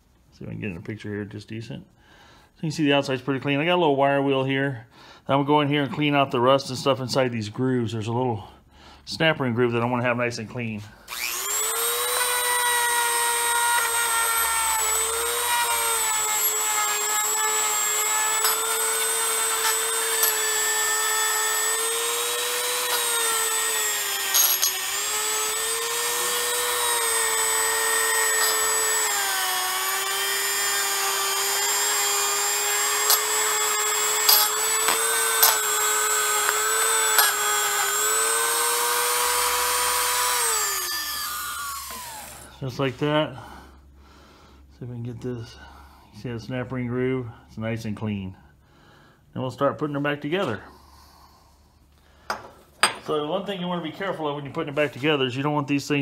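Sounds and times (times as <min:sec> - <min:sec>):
rotary tool wire brush whining: 0:11.1 - 0:42.5.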